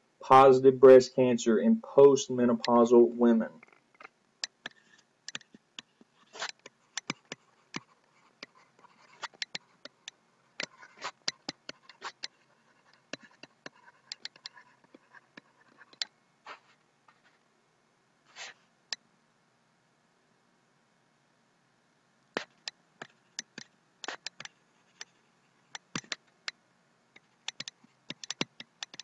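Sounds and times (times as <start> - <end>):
stylus tapping on pen tablet: 4.4 - 16.1, 22.4 - 25.1, 25.7 - 26.6, 27.2 - 29.0.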